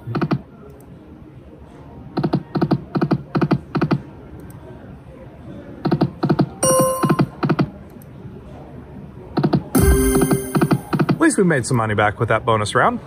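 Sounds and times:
held electronic tone: 9.8s - 11.0s
slot machine reel-stop clunks: 9.8s - 11.1s.

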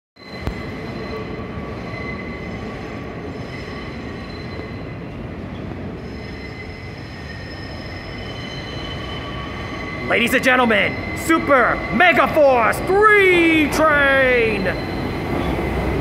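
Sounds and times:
train wheels rumbling on rail: 0.3s - 16.0s
high ringing tones: 6.0s - 16.0s.

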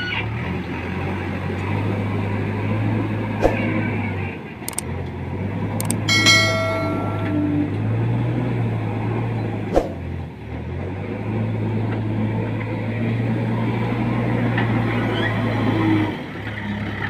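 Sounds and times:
sharp click: 5.8s - 7.4s
short ringing chime: 5.8s - 8.1s.

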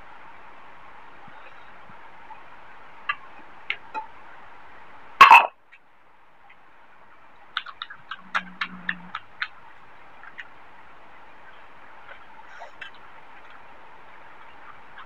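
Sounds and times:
person eating by hand: 7.4s - 10.7s
chewing and lip-smacking clicks: 7.5s - 9.6s, 10.2s - 10.5s
low hum from mouth: 7.8s - 10.3s.

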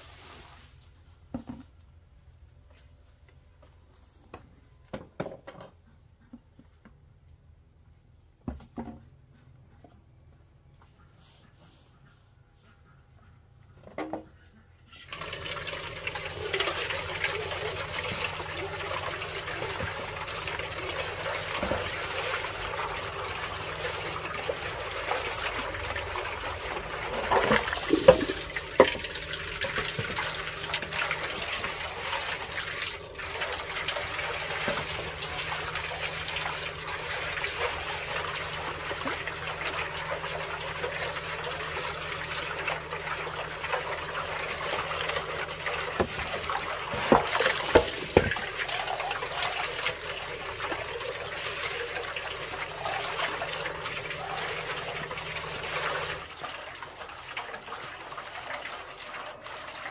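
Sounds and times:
water trickling: 15.1s - 59.9s.

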